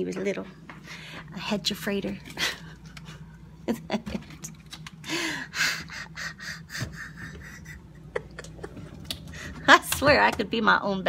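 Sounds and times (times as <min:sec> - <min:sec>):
woman gasping breaths: 0:05.0 - 0:07.8
woman laughing breathily: 0:05.0 - 0:09.6.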